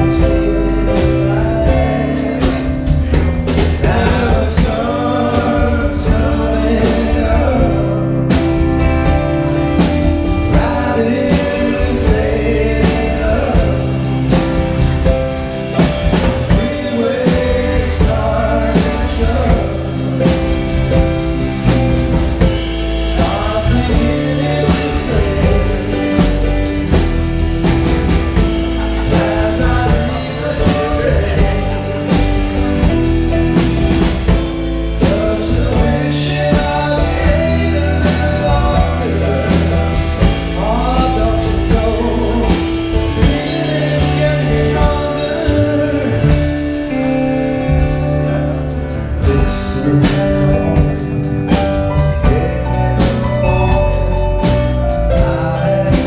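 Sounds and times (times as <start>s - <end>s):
live band playing: 0.0s - 56.0s
person singing: 0.0s - 56.0s.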